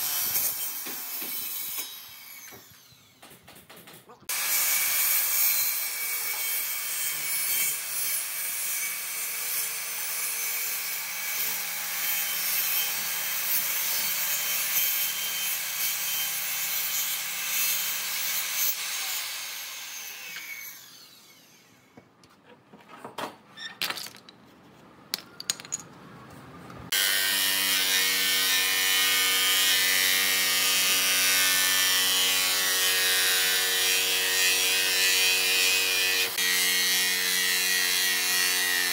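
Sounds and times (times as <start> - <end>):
circular saw cutting wood: 0.0 - 3.2, 4.3 - 22.0.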